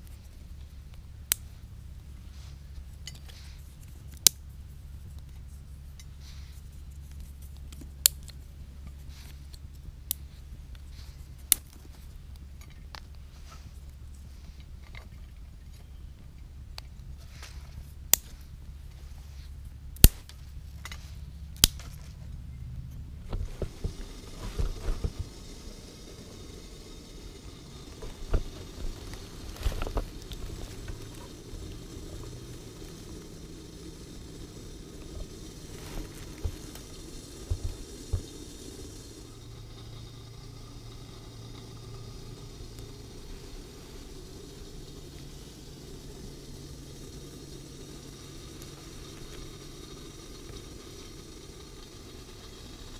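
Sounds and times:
fire crackling and popping: 0.0 - 52.9
wood fire burning: 0.0 - 52.9
wood snapping: 20.0 - 21.0, 21.6 - 22.2.

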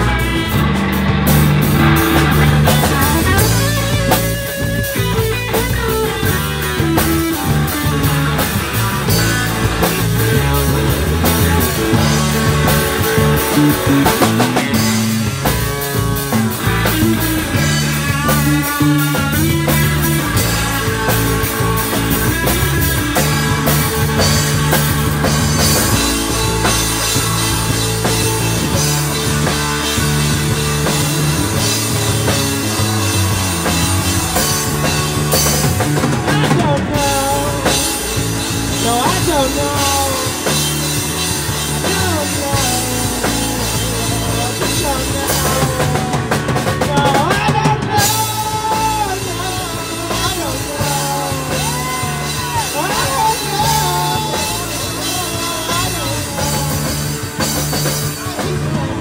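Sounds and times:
electric guitar bending pitch: 0.0 - 59.0
rock band playing: 0.0 - 59.0.

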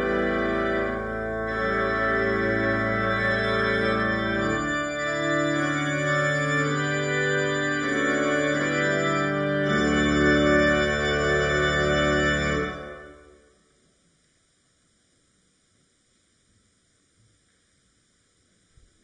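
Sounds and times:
organ playing sustained chords: 0.0 - 13.5.

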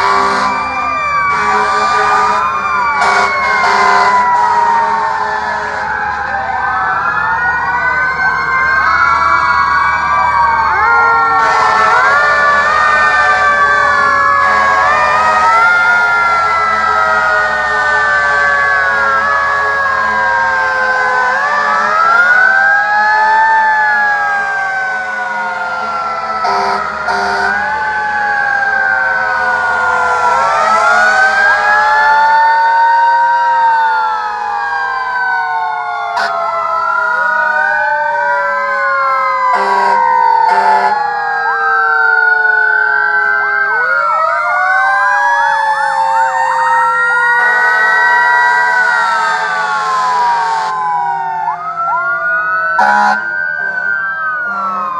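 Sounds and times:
sirens wailing: 0.0 - 54.9
truck engines rumbling: 0.0 - 54.9
short horn blasts: 26.4 - 27.6, 39.6 - 40.9, 52.8 - 53.8.

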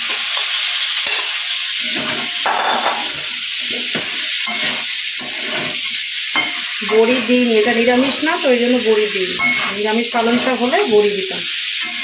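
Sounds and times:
vegetables sizzling in hot oil: 0.0 - 12.0
metal spatula scraping pan: 1.0 - 8.1, 9.3 - 11.1.

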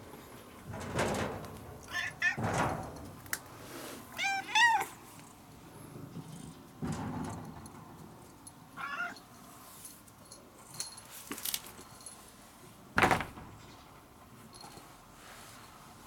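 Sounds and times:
cat meowing: 4.2 - 5.0, 8.8 - 9.2
thump on concrete floor: 13.0 - 13.7.

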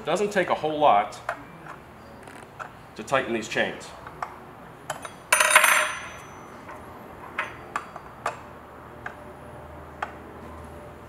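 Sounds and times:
metal tool clinking: 4.9 - 7.6
chain rattling on bar: 5.0 - 6.5.

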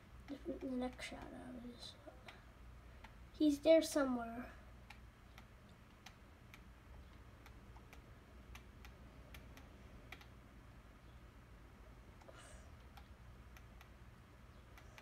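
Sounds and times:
computer mouse clicks: 0.2 - 1.4, 3.0 - 3.2, 4.8 - 10.4, 12.2 - 15.0.

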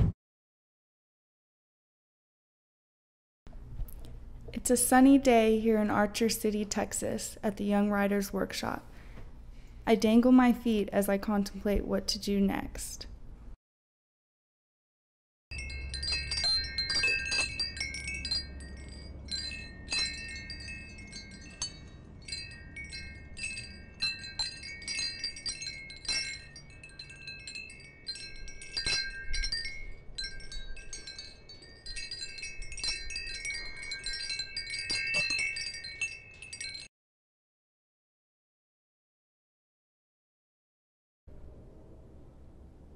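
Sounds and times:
wind chimes tinkling: 15.5 - 36.9
low rumble: 41.3 - 42.9.

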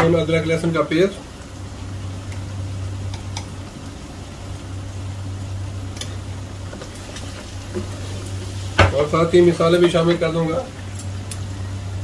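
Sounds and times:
low steady hum: 0.0 - 12.0
meat sizzling in a wok: 1.3 - 9.6.

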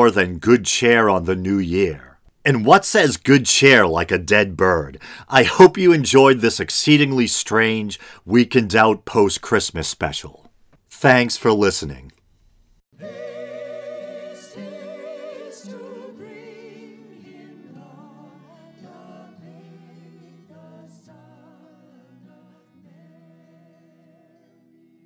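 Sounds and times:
music with vibrato singing: 13.0 - 25.0.

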